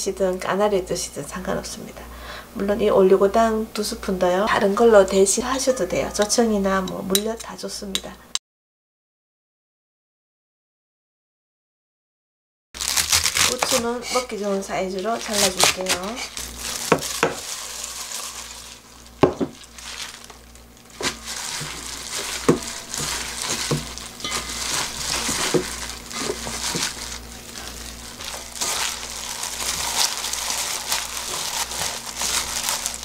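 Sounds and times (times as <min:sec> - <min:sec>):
plastic glove crinkling: 0:12.8 - 0:33.0
rustling and squelching: 0:12.8 - 0:33.0.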